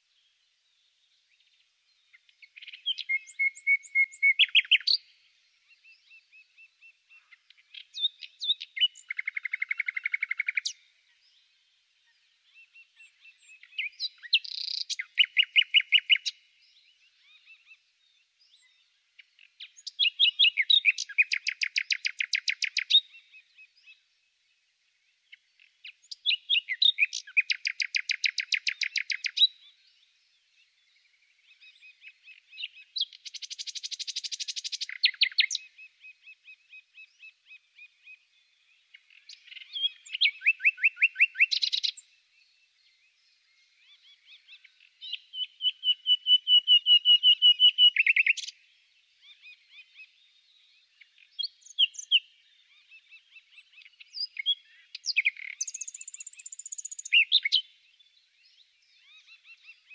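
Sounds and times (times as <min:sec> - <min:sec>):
soft repeated bird notes: 0:00.0 - 0:59.9
songbird singing: 0:00.0 - 0:59.9.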